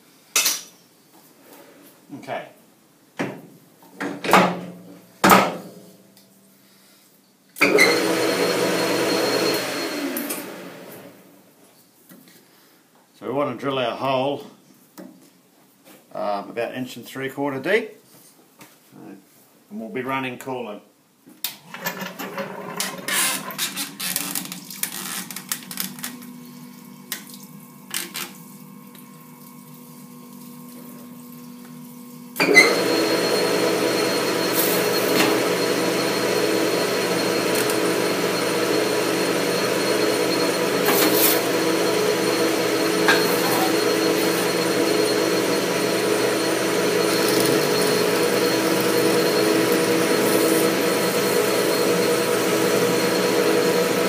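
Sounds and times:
lathe machine hum: 7.6 - 11.2, 32.4 - 54.0
drill boring into metal: 32.4 - 54.0.

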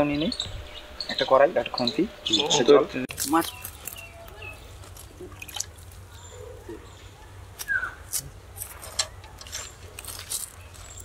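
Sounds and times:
water splashing in bucket: 5.0 - 6.0.

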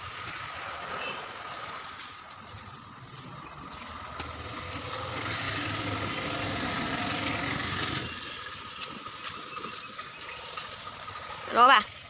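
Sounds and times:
vehicle passing by: 3.0 - 11.4.

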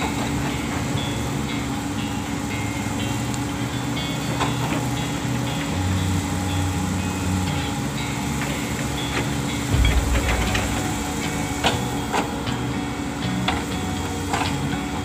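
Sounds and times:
excavator diesel engine running: 0.0 - 15.0
deep rumble: 9.7 - 13.0.

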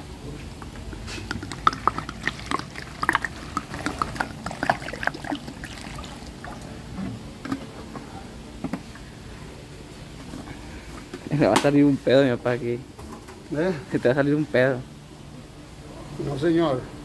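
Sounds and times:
water splashing onto vegetables: 1.3 - 6.6.

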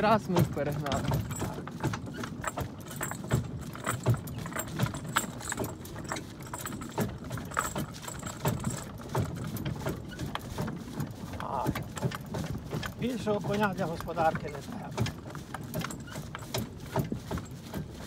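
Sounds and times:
cart clattering: 0.0 - 18.0
harness chains jangling: 0.8 - 9.7.

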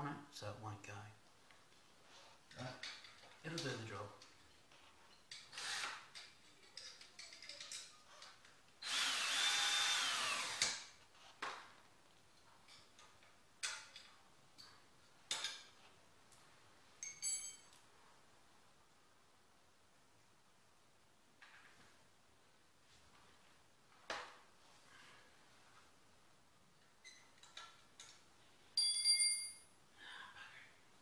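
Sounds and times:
clicks and knocks of metal tools: 2.5 - 8.6, 12.3 - 15.8, 17.0 - 17.8, 26.8 - 29.7
cordless drill motor whine: 5.6 - 6.0, 8.8 - 10.6.

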